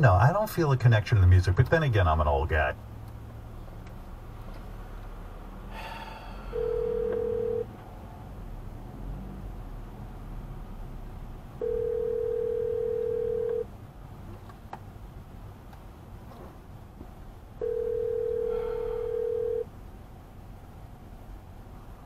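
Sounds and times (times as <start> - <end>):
low road noise in car: 0.0 - 22.0
telephone ringback tone: 6.5 - 7.7, 11.6 - 13.6, 17.6 - 19.7.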